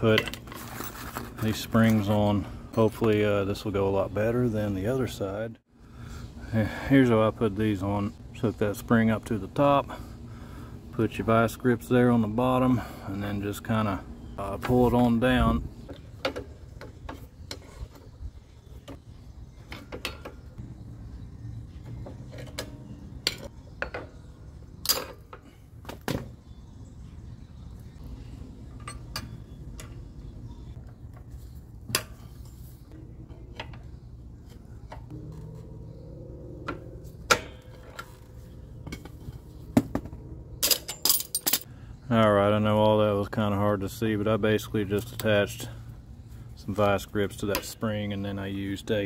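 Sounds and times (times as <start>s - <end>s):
low steady rumble: 27.9s - 42.0s
metal tools clicking and clanking: 28.7s - 30.0s, 40.6s - 41.7s.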